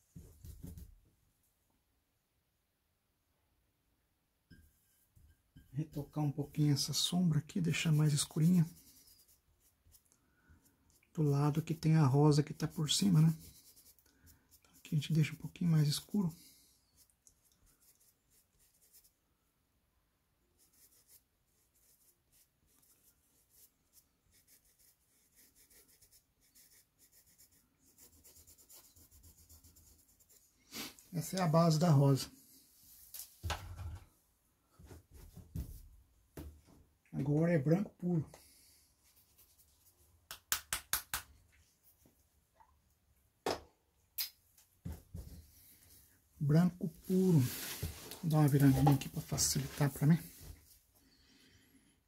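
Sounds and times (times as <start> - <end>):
paintbrush scratching on canvas: 6.0 - 19.2, 20.6 - 30.9, 39.0 - 40.0.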